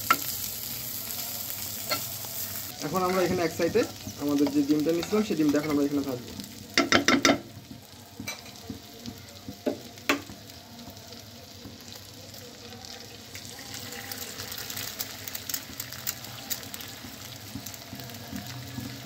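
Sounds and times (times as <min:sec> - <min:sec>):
oil sizzling in a pan: 0:00.0 - 0:19.0
egg frying in oil: 0:12.7 - 0:19.0.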